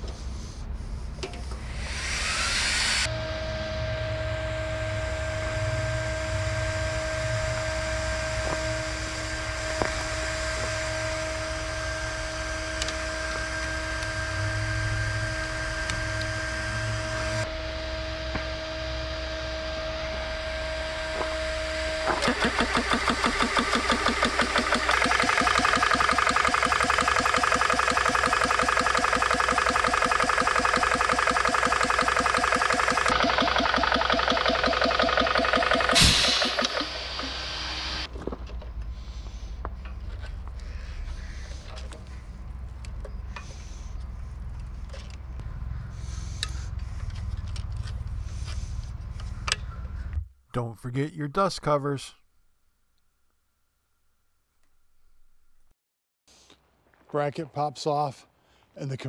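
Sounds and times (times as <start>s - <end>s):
air compressor hum and whine: 0.0s - 50.2s
fast rhythmic pumping: 22.1s - 37.3s.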